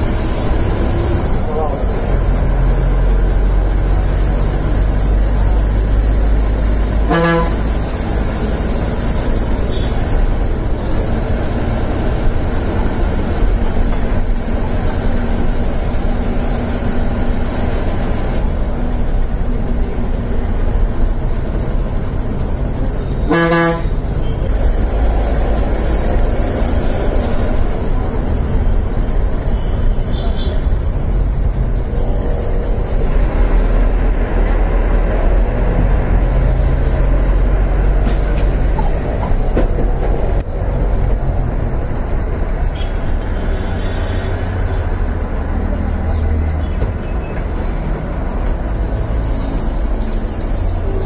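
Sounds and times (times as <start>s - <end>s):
bus engine and road noise: 0.0s - 51.0s
bus horn honking: 6.8s - 8.0s, 23.0s - 24.4s, 42.7s - 44.8s.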